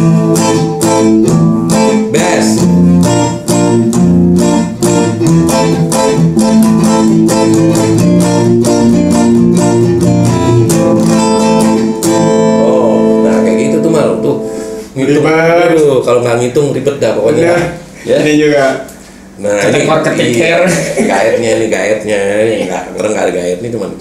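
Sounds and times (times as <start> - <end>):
finger-picked electric guitar: 0.0 - 15.0.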